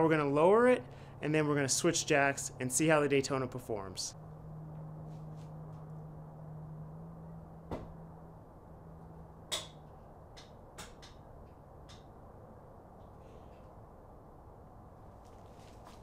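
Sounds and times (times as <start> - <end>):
floor jack low hum: 4.1 - 10.2.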